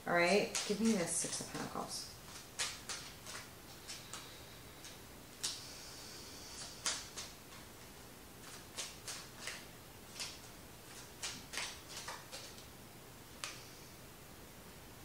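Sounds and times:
cards clicking: 2.3 - 5.6, 6.5 - 7.6, 8.4 - 12.7.

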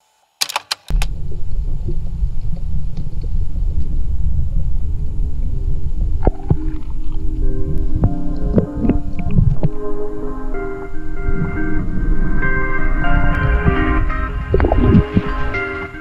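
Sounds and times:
sharp clicks: 0.4 - 1.1
underwater rumble of moving water: 0.9 - 16.0
music: 6.3 - 16.0.

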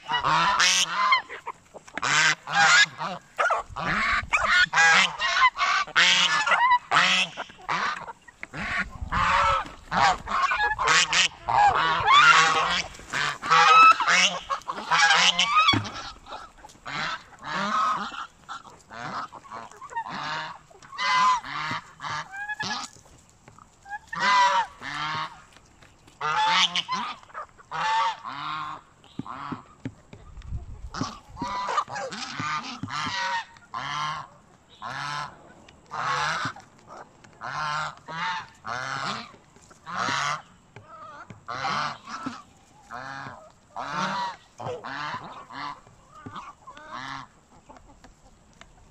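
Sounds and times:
geese honking: 0.0 - 29.8, 30.9 - 48.9.

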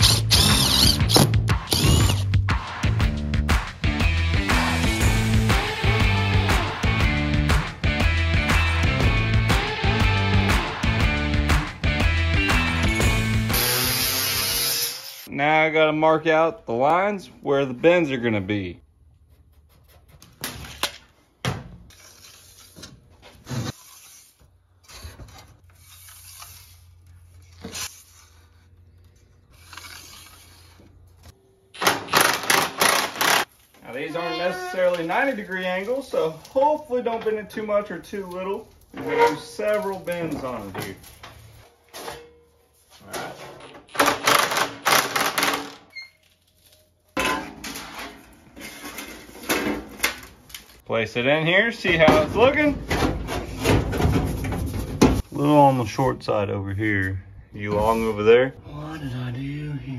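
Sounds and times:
scratchy drawing strokes on steel: 23.6 - 24.4, 29.5 - 30.9
sheet metal clanking and rattling: 52.0 - 55.2.

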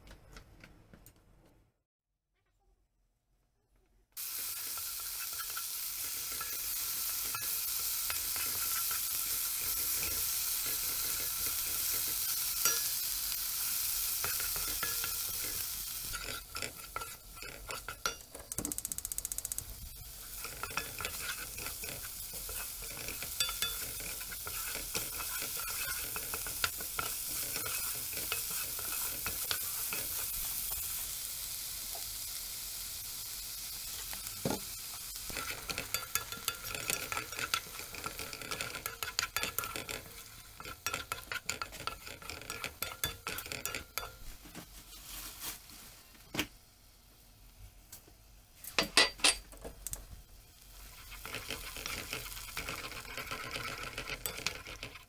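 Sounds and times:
vegetables sizzling in hot oil: 4.2 - 45.9, 46.6 - 55.0
wooden spoon scraping wok: 4.3 - 18.6, 19.9 - 31.1, 34.0 - 45.8, 50.7 - 55.0.

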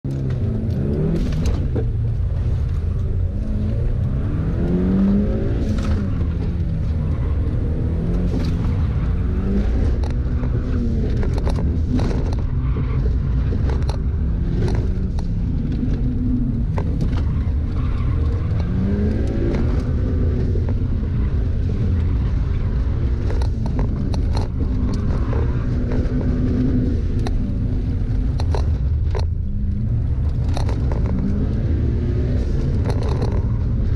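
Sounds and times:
road noise: 0.0 - 33.9
car engine revving: 0.1 - 33.9
sharp knocks and clicks: 9.6 - 17.3, 23.1 - 31.6.

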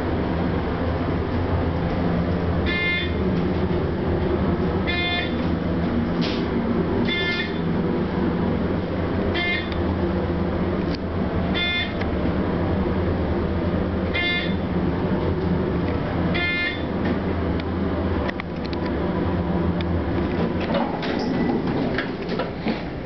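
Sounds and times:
elevator running low rumble: 0.0 - 23.0.

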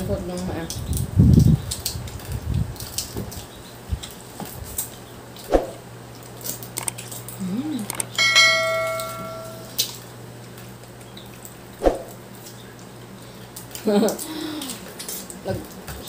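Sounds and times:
sharp clicks and knocks: 6.8 - 7.0, 7.9 - 9.6
bell-like ding: 8.2 - 9.7.

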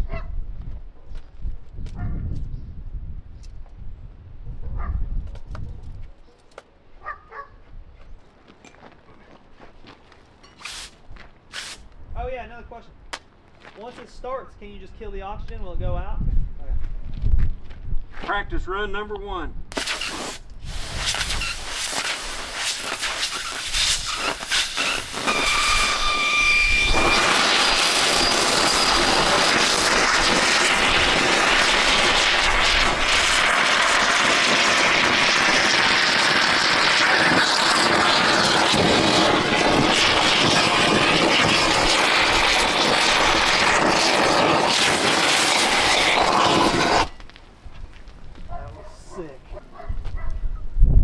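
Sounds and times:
cutting rod burning with loud hiss: 10.6 - 11.9, 19.7 - 47.3
cutting rod sputtering and crackling: 19.7 - 47.3.

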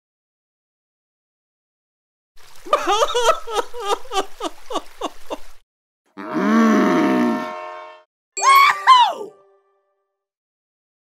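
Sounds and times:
comic sobbing wails: 8.4 - 9.4.

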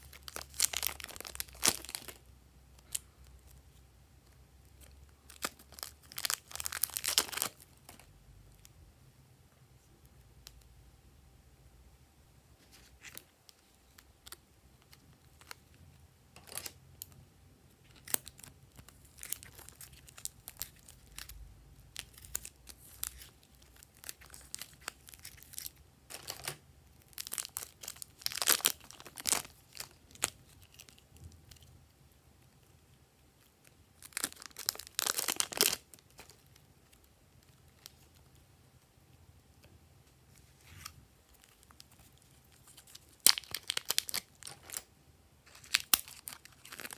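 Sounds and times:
plastic bags crinkling: 0.0 - 2.2, 4.8 - 8.1, 17.8 - 31.6, 34.0 - 36.6, 41.3 - 46.9.

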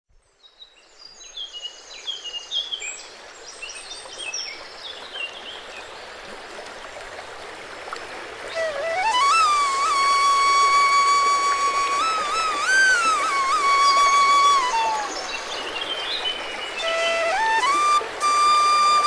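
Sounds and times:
running water: 0.9 - 19.0
birds chirping and whistling: 8.5 - 19.0.

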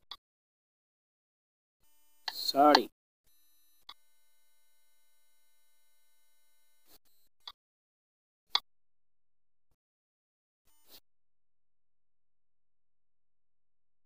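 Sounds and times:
electronic whine: 1.9 - 7.3.

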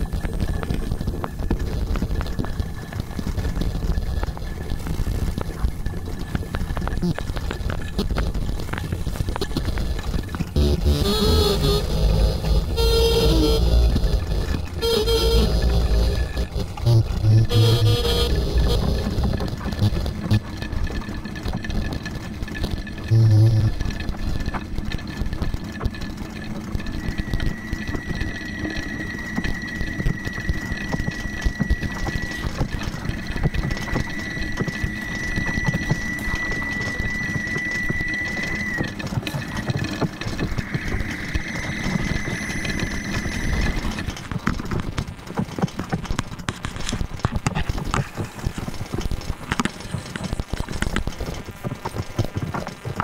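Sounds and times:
low rumbling noise texture: 0.0 - 46.4
rattle of clicks and clatter: 0.0 - 53.0
thin steady high tone: 26.9 - 44.2.

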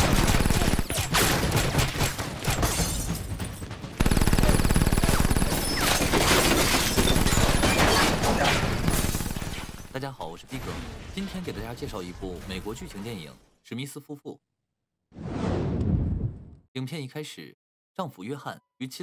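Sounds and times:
automatic gunfire: 0.0 - 2.1, 4.0 - 9.8
glass shattering: 0.8 - 3.7, 5.5 - 10.0.

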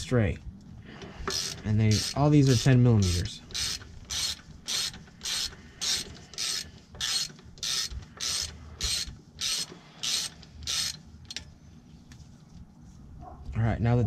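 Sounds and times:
hand ratchet clicking: 1.2 - 11.5.

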